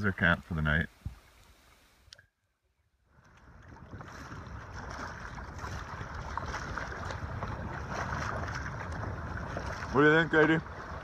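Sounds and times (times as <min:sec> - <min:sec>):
waves washing against a canoe: 0:03.0 - 0:11.0
wind buffeting microphone: 0:03.1 - 0:11.0.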